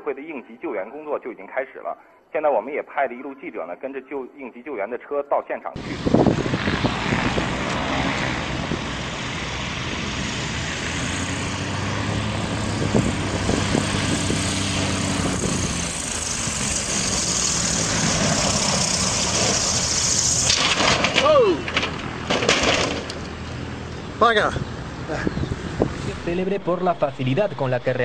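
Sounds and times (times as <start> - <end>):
propeller plane engine drone: 5.8 - 28.0.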